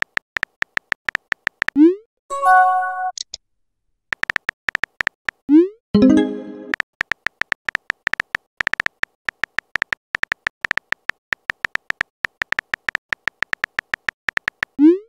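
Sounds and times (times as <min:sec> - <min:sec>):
keyboard typing clicks: 0:00.0 - 0:01.8, 0:04.1 - 0:05.4, 0:06.0 - 0:14.8.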